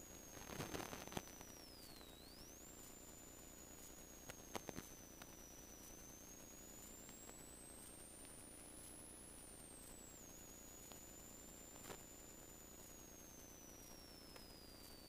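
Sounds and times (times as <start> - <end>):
faint steady hiss: 0.0 - 15.0
thin high whine: 0.0 - 15.0
faint clicks: 3.8 - 15.0.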